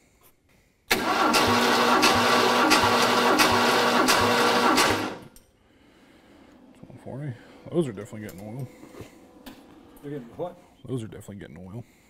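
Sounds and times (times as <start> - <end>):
starter motor cranking engine: 0.9 - 5.3.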